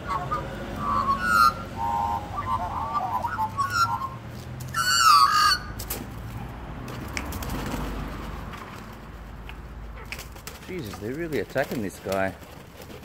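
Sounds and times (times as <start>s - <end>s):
magpies squawking and warbling: 0.0s - 5.8s.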